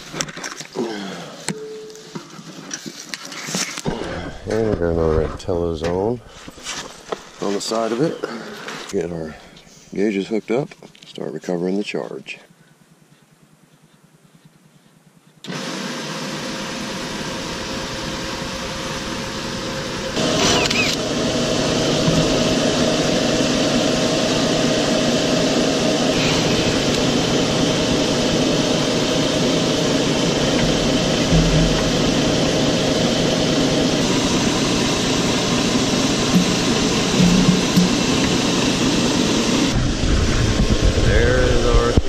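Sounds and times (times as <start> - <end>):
refrigerant recovery machine running: 15.4 - 42.0.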